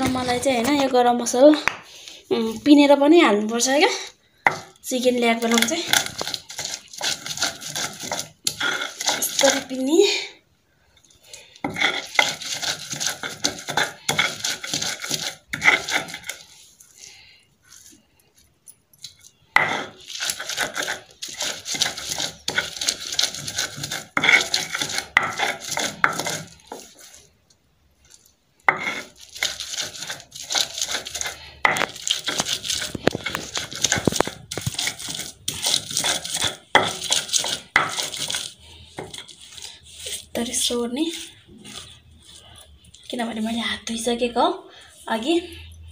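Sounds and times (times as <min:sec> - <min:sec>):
stone grinding on stone slab: 0:05.4 - 0:09.7, 0:11.6 - 0:16.4, 0:19.6 - 0:27.2, 0:28.7 - 0:42.4.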